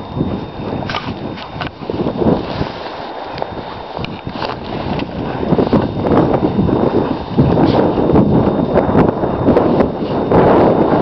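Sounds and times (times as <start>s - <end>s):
wind buffeting microphone: 0.0s - 11.0s
footsteps in sand: 0.4s - 8.2s.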